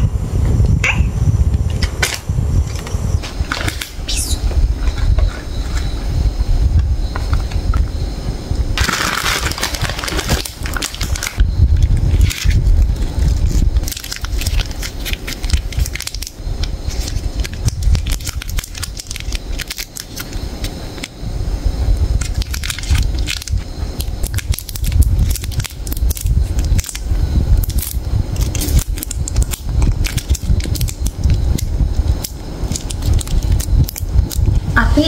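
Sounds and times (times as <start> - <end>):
low rumble: 0.0 - 35.0
foil wrappers crinkling: 3.3 - 4.4, 8.8 - 21.2, 22.2 - 34.6.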